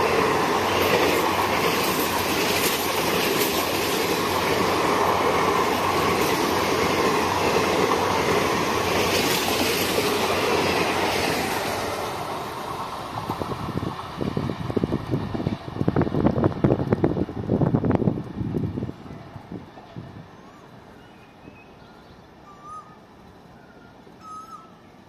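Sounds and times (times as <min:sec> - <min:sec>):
train wheels rumbling and rattling: 0:00.0 - 0:19.9.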